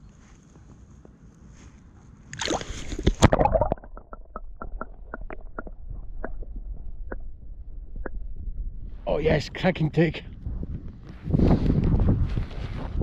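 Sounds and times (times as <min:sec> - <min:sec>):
fish splashing in water: 0:02.3 - 0:05.8
muffled underwater rumble: 0:02.7 - 0:09.6, 0:10.2 - 0:13.0.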